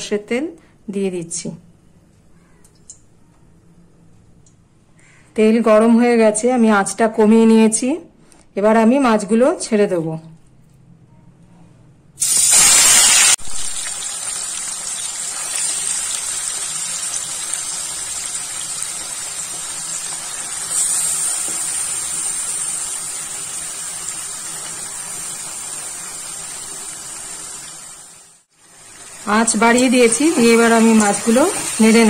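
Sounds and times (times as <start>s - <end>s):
fish sizzling in hot oil: 12.2s - 32.0s.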